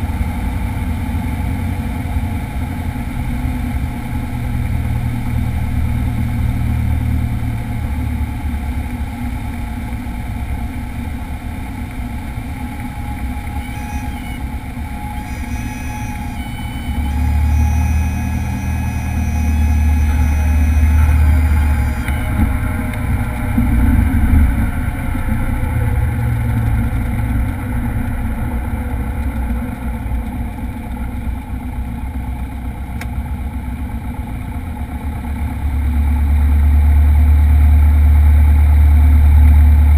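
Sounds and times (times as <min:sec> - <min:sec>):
light airplane engine drone: 0:00.0 - 0:39.9
thin high tone: 0:12.4 - 0:29.4.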